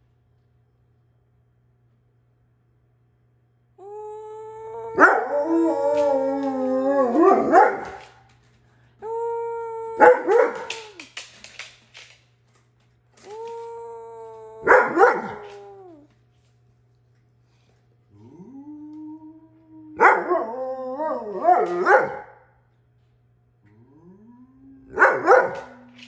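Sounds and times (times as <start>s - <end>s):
dog howling: 3.8s - 8.3s, 9.0s - 11.2s, 13.2s - 16.2s, 18.1s - 22.4s, 23.7s - 26.0s.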